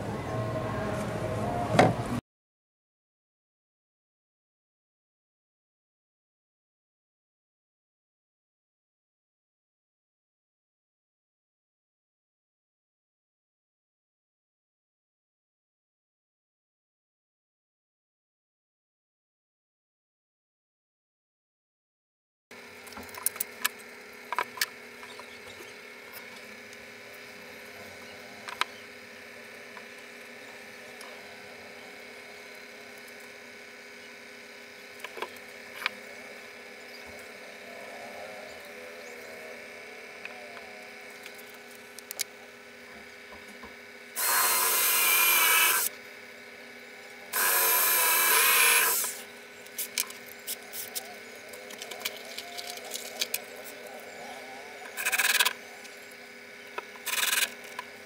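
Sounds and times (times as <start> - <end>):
cordless drill running into wood: 44.2 - 45.9, 47.3 - 49.3, 54.9 - 55.6, 57.0 - 57.8.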